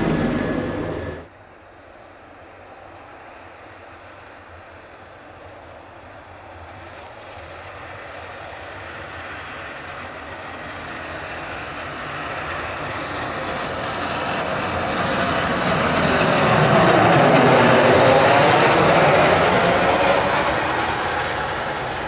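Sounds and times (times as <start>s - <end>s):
plow blade scraping snow: 0.0s - 1.3s, 12.2s - 22.0s
tractor engine: 0.0s - 1.3s.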